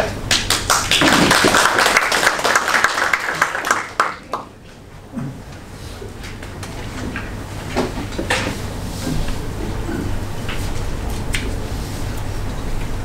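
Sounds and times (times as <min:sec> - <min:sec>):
audience applauding: 0:00.2 - 0:04.6.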